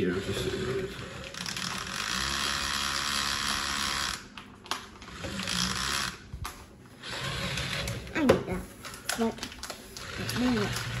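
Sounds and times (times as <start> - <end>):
toy motor whirring: 0.0 - 6.2, 7.0 - 8.2, 10.0 - 11.0.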